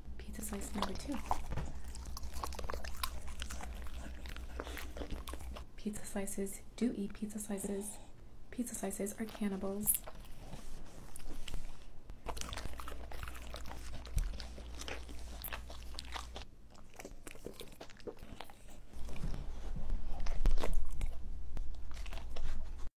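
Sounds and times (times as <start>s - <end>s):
dogs chewing and crunching food: 0.2s - 6.5s, 7.1s - 22.9s
wet slurping and lip licking: 0.5s - 5.7s.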